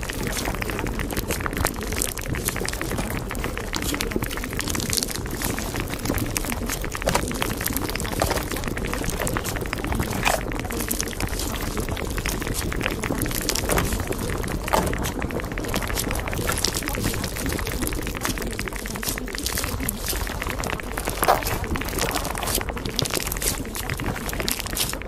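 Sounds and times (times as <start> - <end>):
small pops and crackles: 0.0 - 25.0
water bubbling and gurgling: 0.0 - 25.0.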